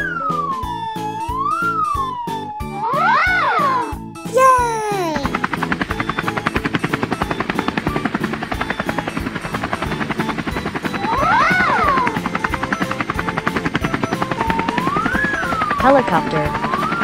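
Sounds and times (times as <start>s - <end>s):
cartoon helicopter rotor chopping: 2.8s - 17.0s.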